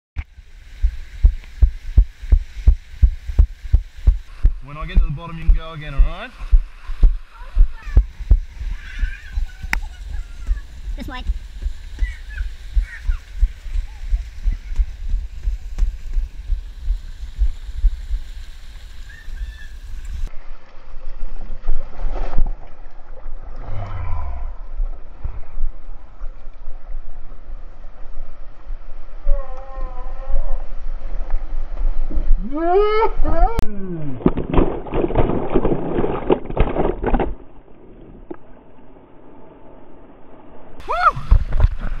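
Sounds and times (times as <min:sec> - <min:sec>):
low microphone rumble: 0:00.2 - 0:20.3, 0:23.3 - 0:35.3
water rushing down a slide: 0:00.2 - 0:26.6, 0:34.0 - 0:38.4, 0:40.8 - 0:42.0.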